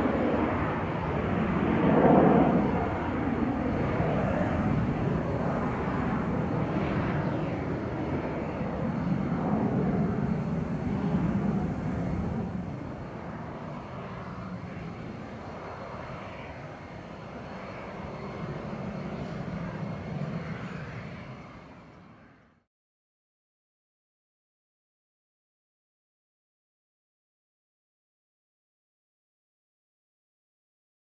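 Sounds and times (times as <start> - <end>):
distant jet rumble: 0.0 - 22.6.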